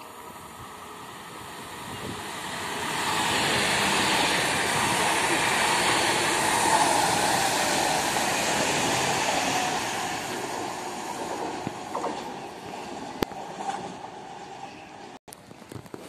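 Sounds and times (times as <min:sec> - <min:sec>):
train wheels rushing on rails: 0:00.0 - 0:16.0.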